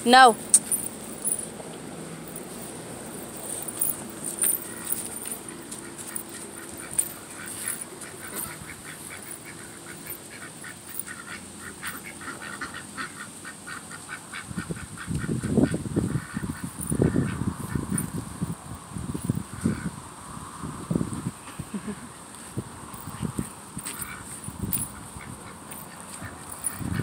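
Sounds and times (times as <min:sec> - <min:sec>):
ducks quacking: 0:06.2 - 0:17.9.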